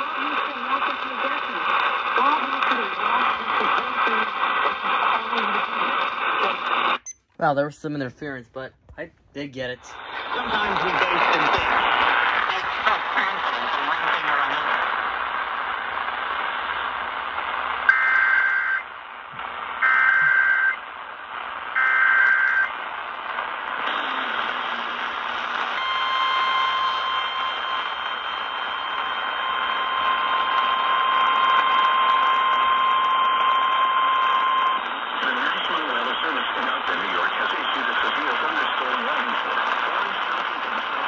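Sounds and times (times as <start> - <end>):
radio static hiss: 0.0 - 41.0
long steady attention tone: 9.9 - 41.0.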